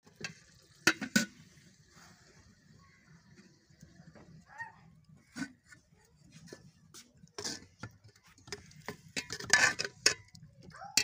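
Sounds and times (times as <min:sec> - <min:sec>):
cooking utensils clicking: 0:07.4 - 0:11.0.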